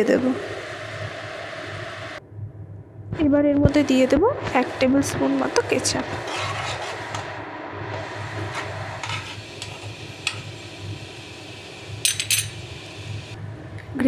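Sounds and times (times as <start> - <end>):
gravy sizzling: 4.4 - 13.4
spoon clinking and scraping pan: 8.5 - 10.4, 12.0 - 12.6.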